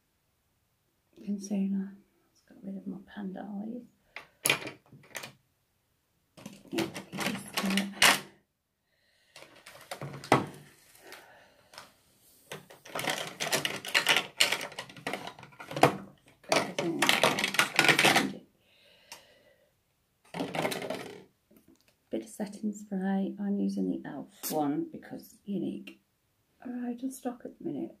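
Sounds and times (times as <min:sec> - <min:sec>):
plastic makeup items clicking: 0:04.3 - 0:05.4, 0:06.4 - 0:08.2, 0:09.4 - 0:10.6, 0:12.5 - 0:18.4, 0:20.3 - 0:22.0.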